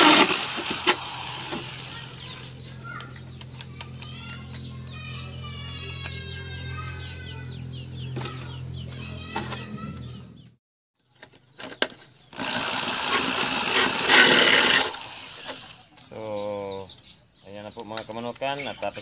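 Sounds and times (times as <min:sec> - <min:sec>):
drill clicks: 0:00.0 - 0:02.4, 0:11.7 - 0:15.8
hole saw grinding through plastic: 0:00.0 - 0:02.4, 0:12.3 - 0:15.9.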